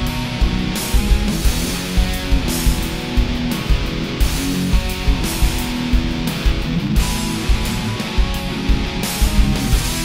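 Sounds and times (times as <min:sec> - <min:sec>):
kick drum beat: 0:00.0 - 0:10.0
strummed electric guitar: 0:00.0 - 0:10.0.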